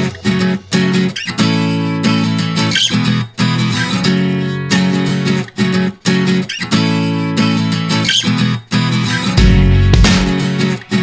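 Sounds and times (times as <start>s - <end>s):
guitar music: 0.0s - 11.0s
heavy bass: 9.4s - 10.4s.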